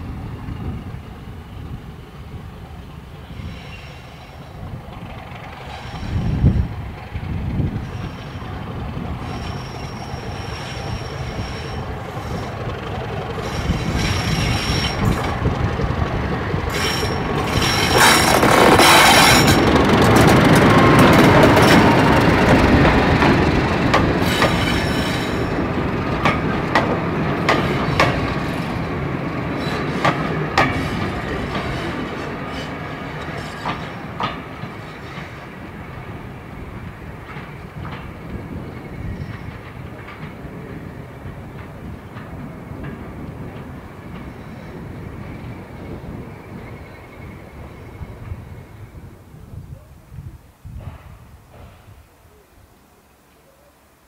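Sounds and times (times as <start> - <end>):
diesel locomotive engine: 0.0 - 54.0
wheels clicking on track: 4.7 - 35.4.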